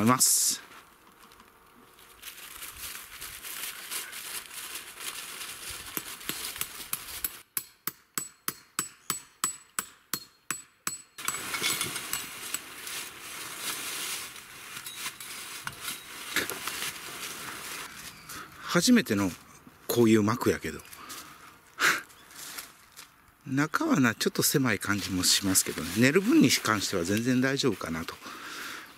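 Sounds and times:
rustle of leaves and tent canvas: 0:00.0 - 0:07.4, 0:11.3 - 0:28.9
metallic hammer strikes on tent pegs: 0:06.3 - 0:12.7.

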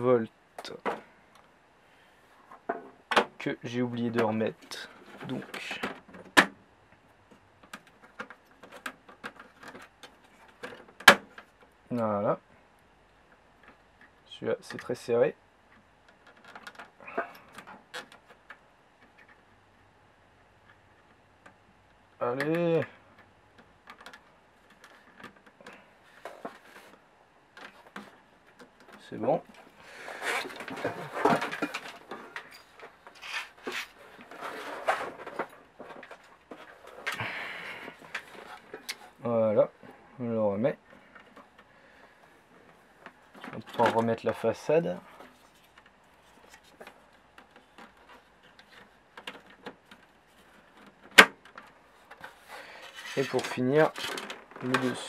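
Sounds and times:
plastic clicks and rustles: 0:15.7 - 0:19.5, 0:22.9 - 0:39.2, 0:45.1 - 0:55.0.

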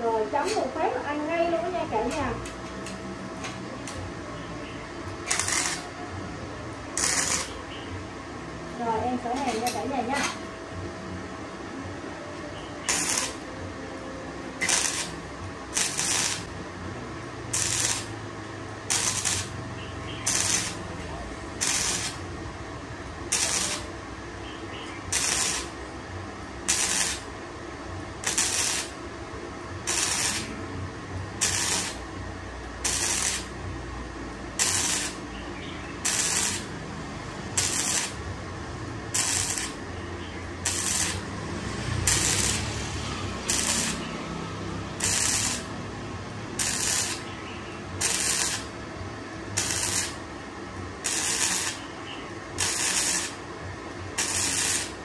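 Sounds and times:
welder arc crackling: 0:05.0 - 0:06.0, 0:06.9 - 0:07.6, 0:12.8 - 0:13.5, 0:14.4 - 0:16.6, 0:17.4 - 0:27.4, 0:28.0 - 0:29.1, 0:29.7 - 0:55.0.

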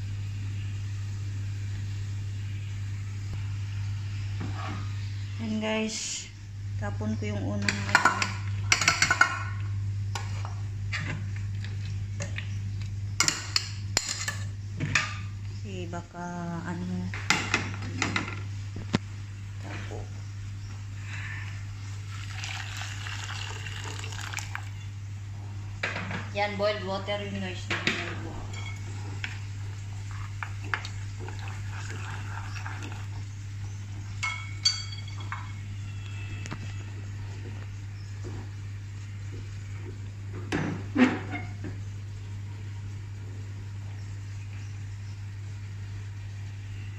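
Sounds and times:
steady low hum: 0:00.0 - 0:46.9
ringing clinks against pot: 0:34.2 - 0:35.6.

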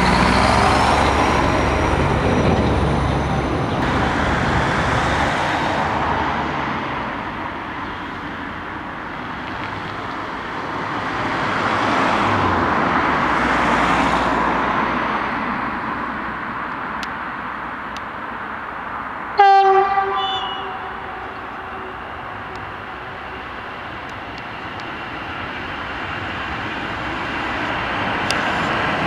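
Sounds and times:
cars passing: 0:00.0 - 0:29.0.

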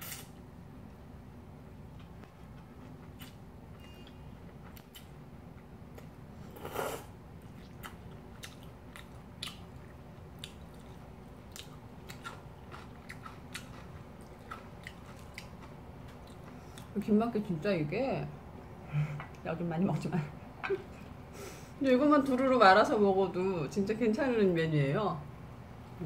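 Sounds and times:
soft chewing: 0:01.8 - 0:17.2.

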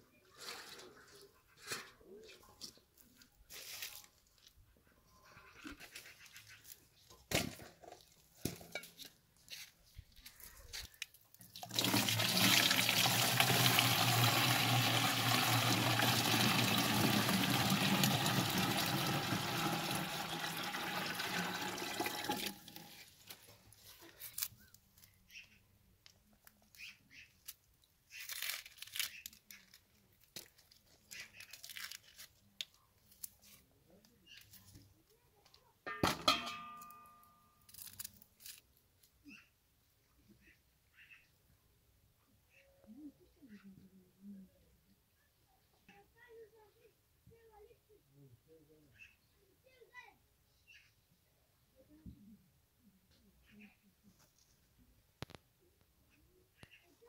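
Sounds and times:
water gushing into plastic jerrycan: 0:11.5 - 0:23.1.

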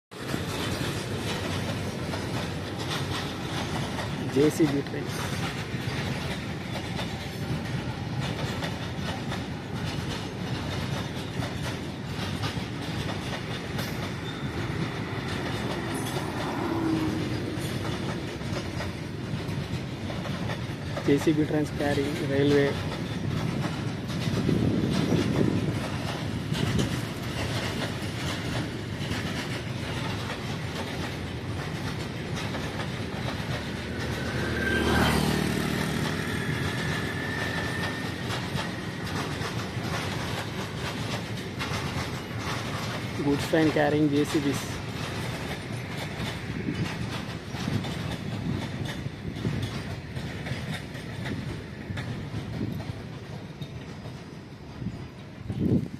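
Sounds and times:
train wheels clicking over rail joints: 0:00.1 - 0:55.9.

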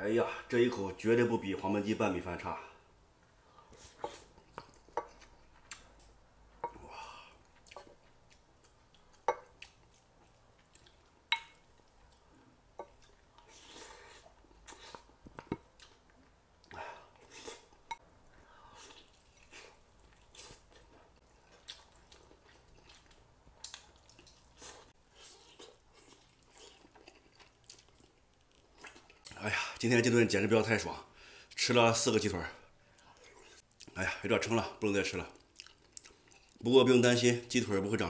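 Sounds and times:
wet chewing and smacking: 0:03.7 - 0:18.0, 0:18.7 - 0:29.4, 0:35.3 - 0:36.6.

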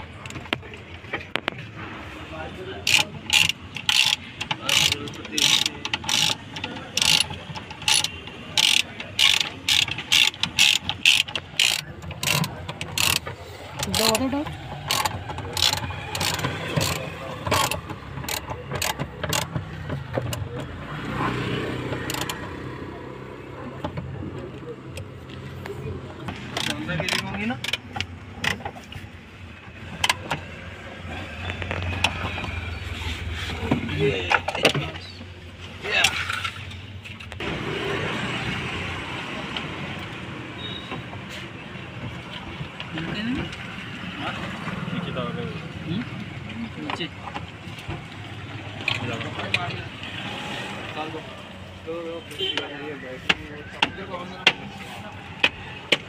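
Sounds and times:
ratchet wrench clicking: 0:02.8 - 0:19.6, 0:22.0 - 0:22.4, 0:26.5 - 0:28.1.

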